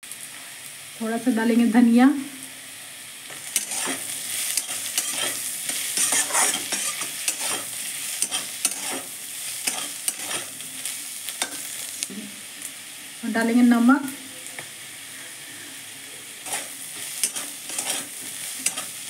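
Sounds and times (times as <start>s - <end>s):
hot oil sizzling: 0.0s - 19.0s
spatula scraping and tapping pan: 3.3s - 10.6s, 11.4s - 11.8s, 16.4s - 19.0s.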